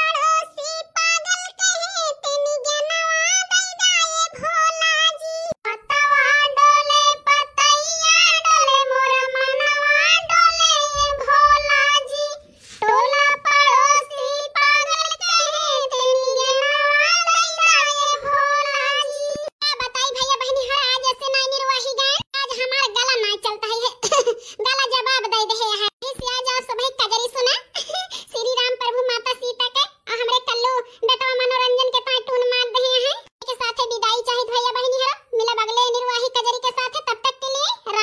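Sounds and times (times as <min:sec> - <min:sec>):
high-pitched voice singing: 0:00.0 - 0:24.0.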